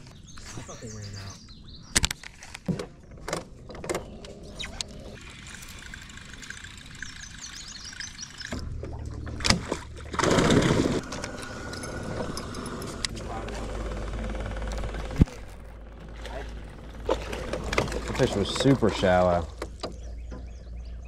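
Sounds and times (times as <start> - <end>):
faint bird chirps: 0.0 - 2.0
electric boat motor humming: 4.1 - 20.7.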